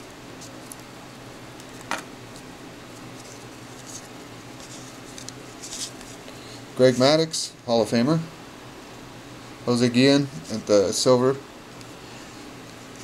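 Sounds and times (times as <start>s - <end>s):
steady low hum: 0.0s - 13.0s
cards sliding in hands: 1.6s - 7.2s.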